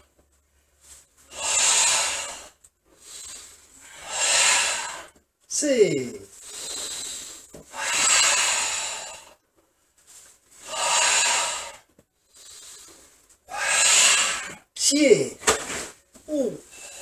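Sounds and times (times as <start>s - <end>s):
forceful hissing breaths: 1.2s - 5.2s, 6.3s - 9.4s, 10.6s - 14.7s, 16.7s - 17.0s.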